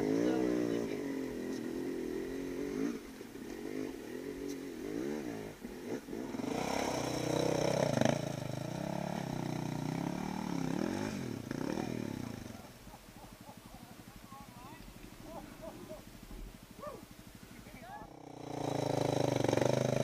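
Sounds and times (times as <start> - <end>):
dirt bike engines revving: 0.0 - 20.0
loud steady engine: 13.6 - 20.0.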